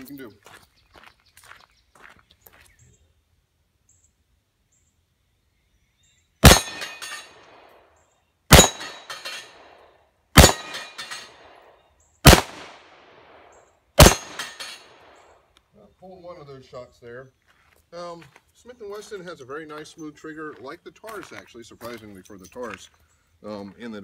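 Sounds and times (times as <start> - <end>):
revolver shots with echo: 6.4 - 7.7, 8.5 - 9.8, 10.4 - 15.0.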